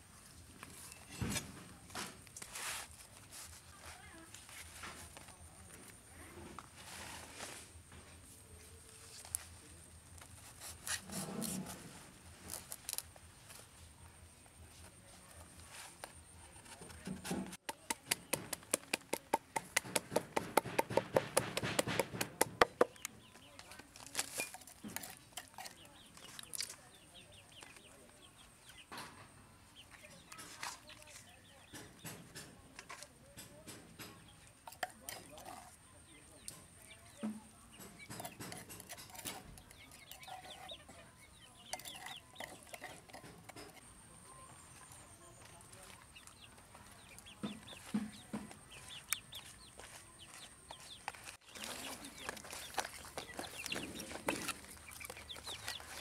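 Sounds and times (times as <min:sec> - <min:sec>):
wooden pestle knocking: 0:17.1 - 0:23.0
chickens clucking: 0:34.1 - 0:56.0.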